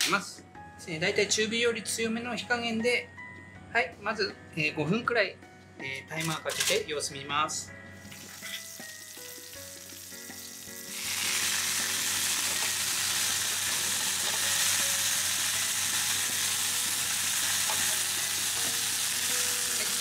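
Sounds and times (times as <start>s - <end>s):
chicken frying in oil: 8.1s - 20.0s.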